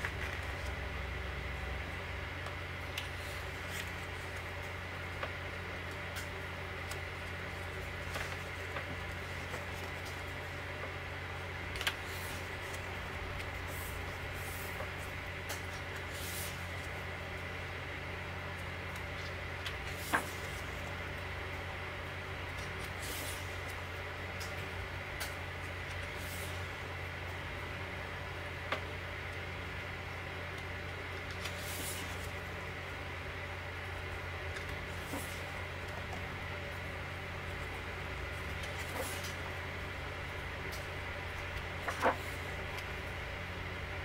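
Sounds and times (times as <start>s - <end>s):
book pages turning: 0.0s - 0.8s, 2.4s - 11.0s, 11.7s - 17.0s, 18.6s - 21.2s, 31.1s - 32.6s, 34.5s - 36.7s, 38.3s - 39.6s, 40.6s - 43.1s
steady low hum: 0.0s - 44.0s
paper swishing: 16.0s - 16.8s, 19.9s - 20.7s, 22.9s - 23.6s, 31.3s - 32.4s, 34.9s - 35.6s, 38.6s - 39.4s.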